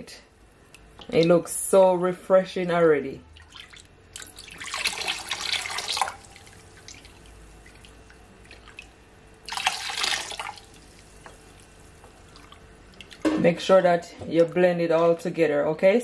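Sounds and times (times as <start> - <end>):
liquid splashing while stirred: 0.6 - 1.4, 3.3 - 13.3.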